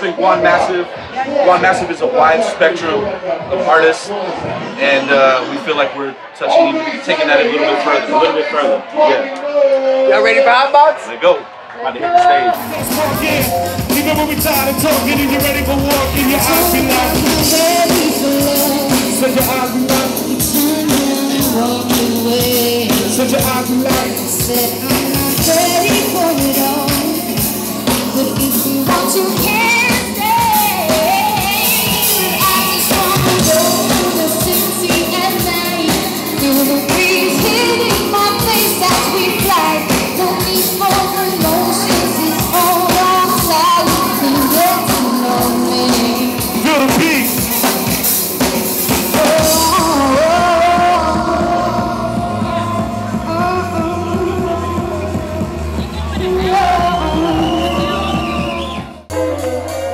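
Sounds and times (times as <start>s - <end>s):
backing track with steady beat: 12.5s - 59.9s
woman singing into a microphone: 16.3s - 46.6s, 49.0s - 58.5s.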